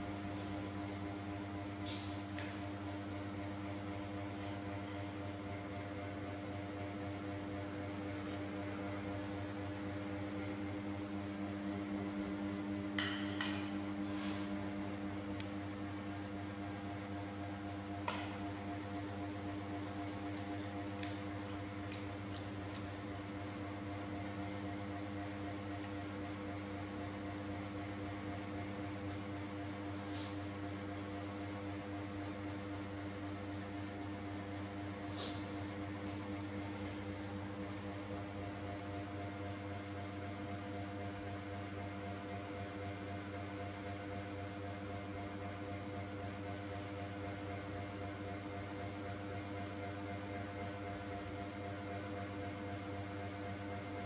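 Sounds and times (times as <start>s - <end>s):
fan humming: 0.0s - 41.9s.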